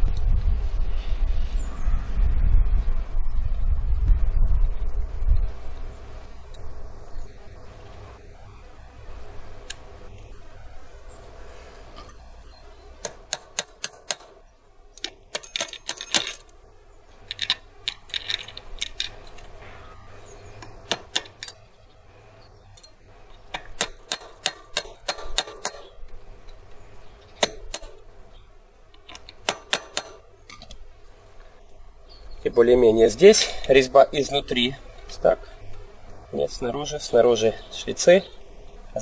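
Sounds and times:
metal sprockets clinking: 15.0 - 16.5, 17.3 - 19.5.

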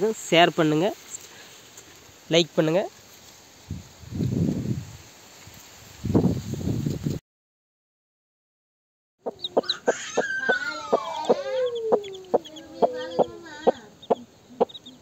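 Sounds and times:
chicks peeping: 9.2 - 15.0
hen clucking: 9.2 - 15.0
hen call falling in pitch: 9.6 - 13.8.

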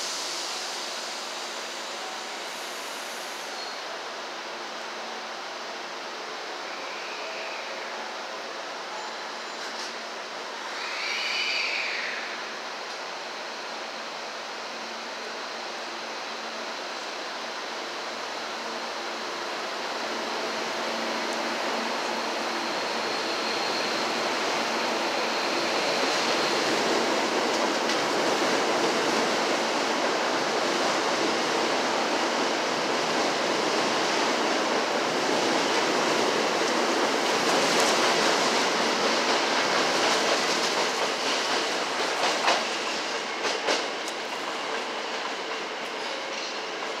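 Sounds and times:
electric train passing: 9.6 - 47.0.

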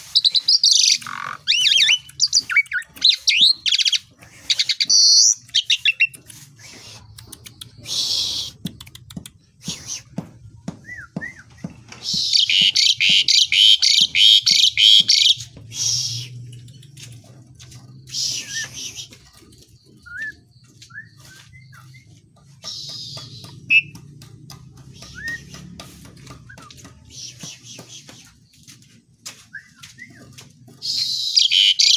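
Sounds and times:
starling harsh rasping calls: 0.1 - 6.1, 12.1 - 16.3, 30.8 - 31.9
sharp clicks: 0.2 - 4.0, 4.8 - 9.5.

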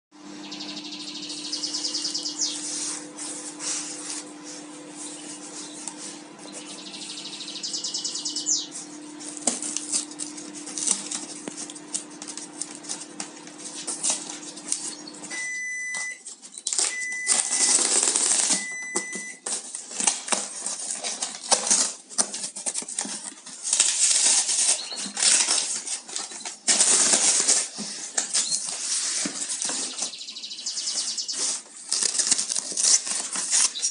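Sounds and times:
packing tape ripping off box: 9.2 - 14.9, 16.2 - 30.2, 30.9 - 33.9
cardboard flaps rustling: 16.3 - 30.2.

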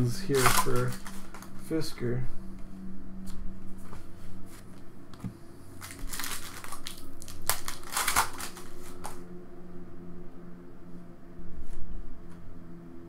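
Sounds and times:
faint steady hum: 0.0 - 13.0
foil pack crinkling and tearing: 0.2 - 1.5, 5.8 - 9.2.

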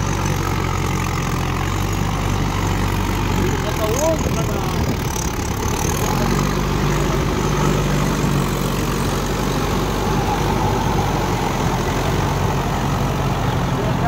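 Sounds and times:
tractor diesel engine under load: 0.0 - 14.0.

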